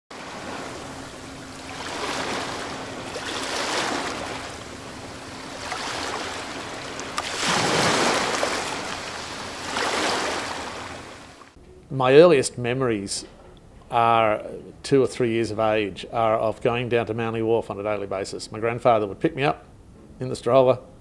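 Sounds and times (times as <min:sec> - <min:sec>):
water waves washing: 0:00.1 - 0:11.6
faint steady hum: 0:00.2 - 0:21.0.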